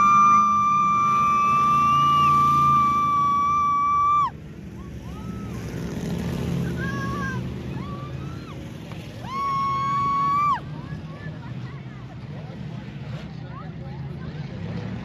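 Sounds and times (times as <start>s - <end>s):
low engine rumble: 0.0s - 15.0s
race car engine at full throttle: 0.0s - 15.0s
race car engines revving: 0.0s - 15.0s.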